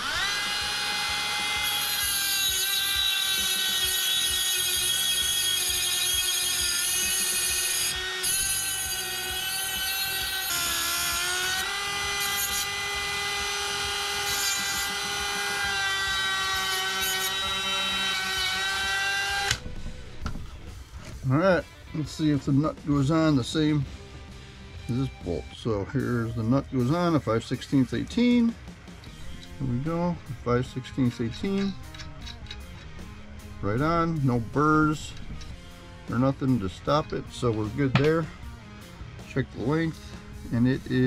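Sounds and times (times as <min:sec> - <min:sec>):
rotary tool high whine: 0:00.0 - 0:21.1, 0:29.0 - 0:39.6.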